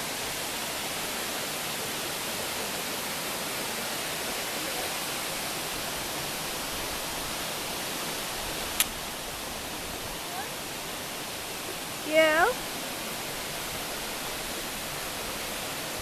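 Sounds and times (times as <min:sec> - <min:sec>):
waterfall roaring: 0:00.0 - 0:16.0.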